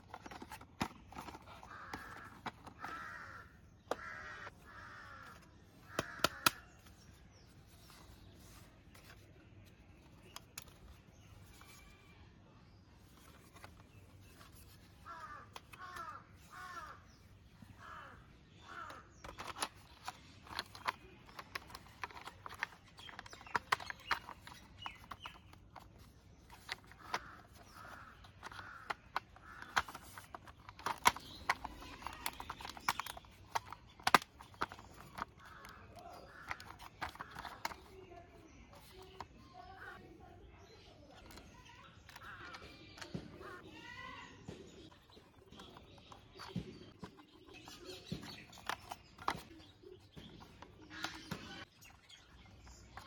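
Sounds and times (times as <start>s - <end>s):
light plastic rubbing: 0.0s - 12.1s, 13.0s - 53.0s
plastic clicks and snaps: 5.2s - 7.0s, 18.6s - 40.0s, 44.9s - 53.0s.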